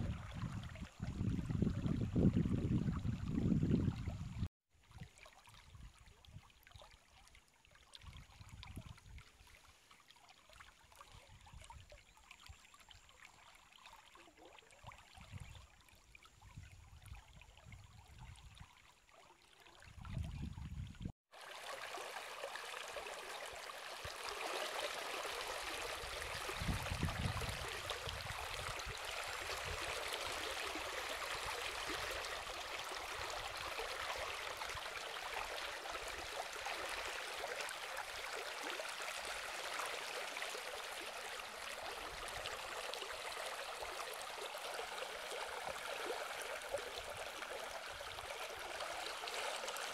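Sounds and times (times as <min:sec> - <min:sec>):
wind rumble on microphone: 0:00.0 - 0:04.5, 0:08.1 - 0:09.2, 0:16.4 - 0:18.7, 0:19.9 - 0:21.1, 0:26.0 - 0:29.9.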